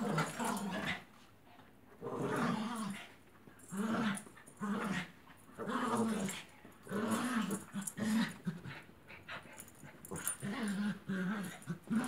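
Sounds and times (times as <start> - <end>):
small dogs play-growling: 0.0 - 1.3, 1.9 - 12.0.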